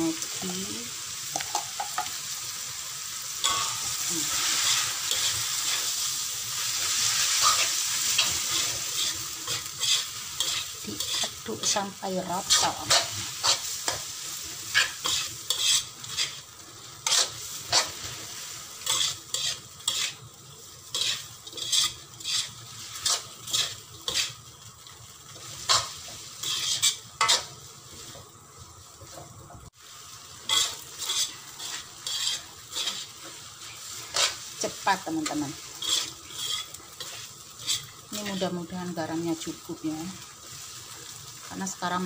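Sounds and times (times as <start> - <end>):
food sizzling: 0.0 - 42.0
metal spatula scraping wok: 3.4 - 24.5, 25.3 - 28.2, 30.4 - 38.6.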